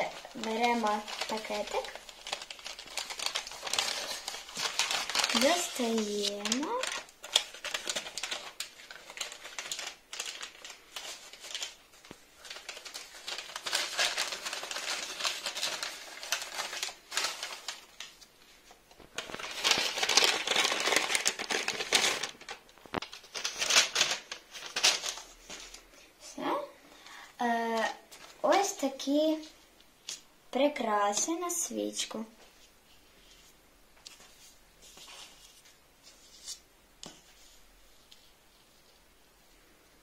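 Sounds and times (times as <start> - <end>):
paper bag rustling: 0.0 - 25.8.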